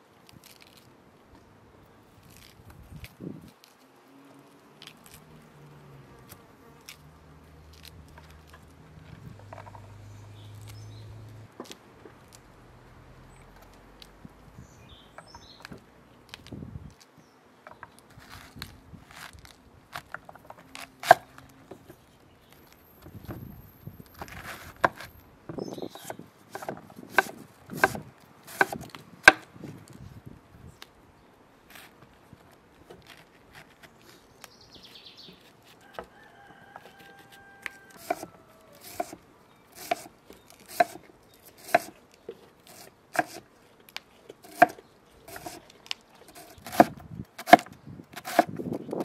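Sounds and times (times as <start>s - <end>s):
bean pods snapping open: 0.2s - 0.9s, 2.2s - 3.9s, 4.7s - 5.4s
knife slicing cabbage: 18.1s - 21.5s, 24.1s - 25.2s, 25.9s - 29.7s, 36.8s - 43.5s, 44.3s - 49.0s.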